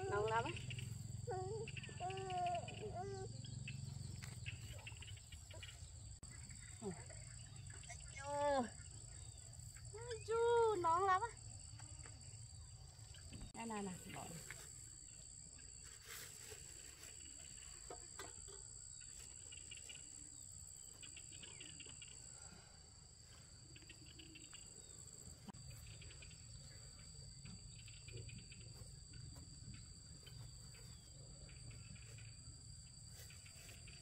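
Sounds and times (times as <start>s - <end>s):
insect chirping: 0.0s - 34.0s.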